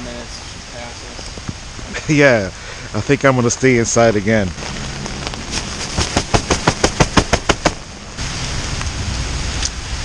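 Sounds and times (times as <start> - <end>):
steady hiss: 0.0 - 10.0
rapid sharp clicks: 6.0 - 7.8.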